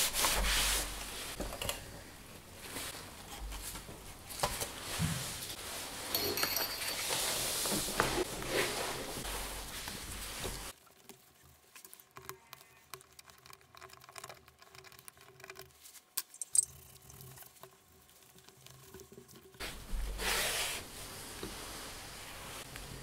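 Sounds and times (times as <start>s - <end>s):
rustling scrape on cloth: 7.1s - 10.8s, 19.6s - 22.7s.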